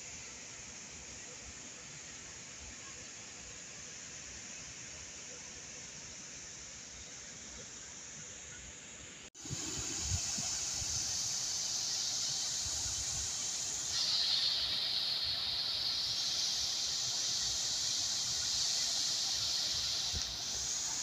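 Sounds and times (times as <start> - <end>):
fountain water splashing: 9.4 - 21.0.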